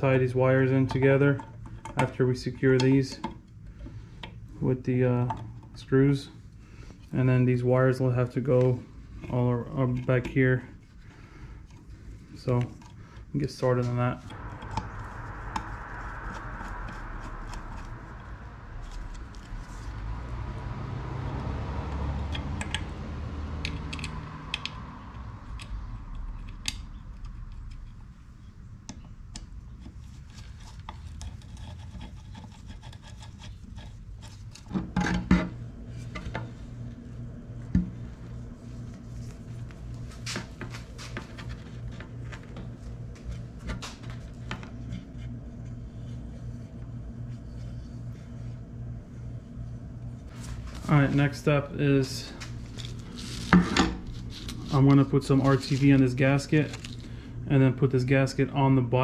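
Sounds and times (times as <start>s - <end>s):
parts rubbing and clicking: 29.3s - 36.6s, 50.3s - 57.1s.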